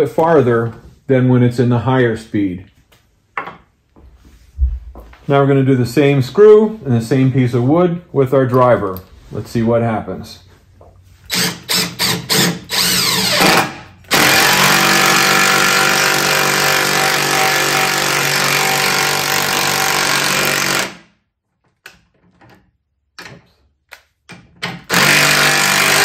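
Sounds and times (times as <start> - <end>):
impact driver hammering into wood: 24.6 - 26.0.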